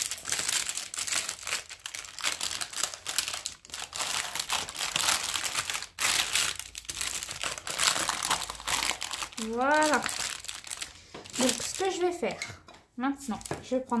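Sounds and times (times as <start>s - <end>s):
lining peeling with crinkling rustle: 0.0s - 12.4s.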